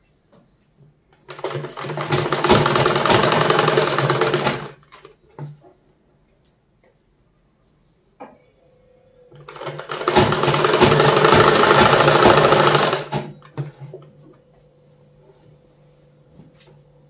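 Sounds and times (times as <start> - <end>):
sewing machine stitching: 1.3 - 4.9, 9.4 - 13.7.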